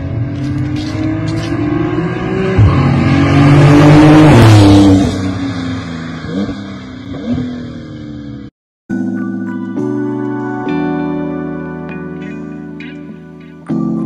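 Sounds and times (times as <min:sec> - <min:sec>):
car exhaust revving: 0:00.0 - 0:08.5.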